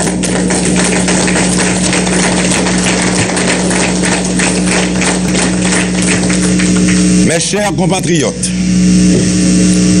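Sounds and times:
audience applauding: 0.0s - 7.3s
electrical hum: 0.0s - 10.0s.

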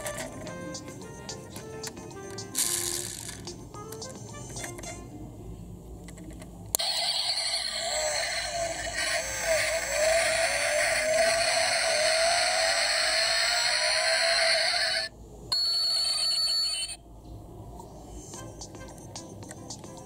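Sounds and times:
electronic engine revving sound: 6.8s - 15.1s.

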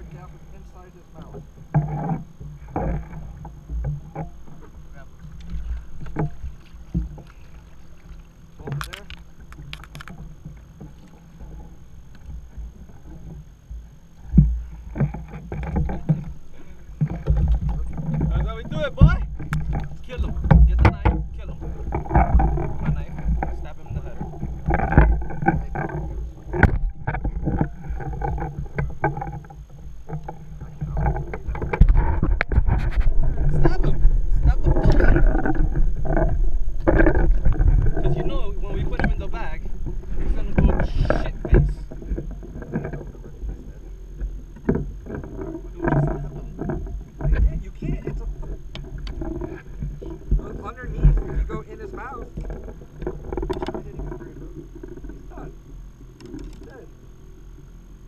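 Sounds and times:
gear knocking against hull: 0.0s - 56.9s
water around kayaks: 0.0s - 58.0s
wind: 0.0s - 58.0s
wind buffeting microphone: 30.5s - 44.3s.

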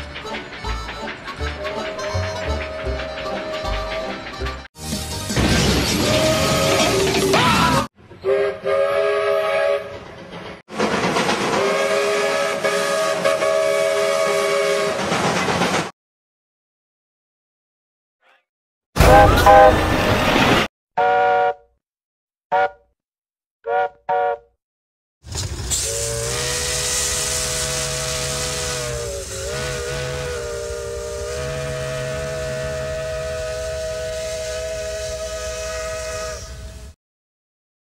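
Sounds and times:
running train noise: 0.0s - 15.9s, 19.0s - 20.7s, 25.3s - 37.0s
steam locomotive chime whistle: 0.2s - 4.4s, 8.2s - 10.0s, 11.6s - 15.0s, 19.0s - 19.9s, 25.8s - 37.0s
steam hissing: 25.4s - 36.9s.

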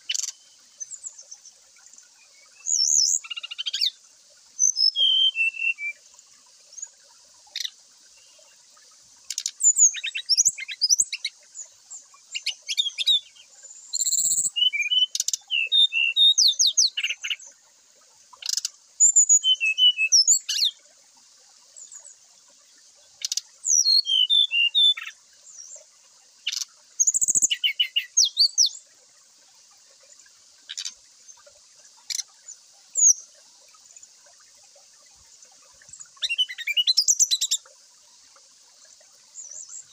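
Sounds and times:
faint high hiss: 0.0s - 39.9s
bird whistles and chirps: 4.6s - 6.0s, 13.9s - 17.4s, 18.4s - 20.7s, 23.2s - 25.1s, 26.5s - 28.8s, 36.2s - 37.6s.

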